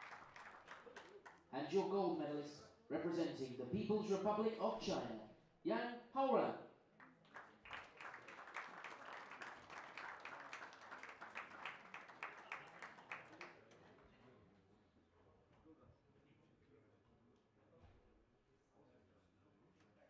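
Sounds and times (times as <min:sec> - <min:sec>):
audience clapping: 0:00.0 - 0:01.5, 0:07.0 - 0:13.8.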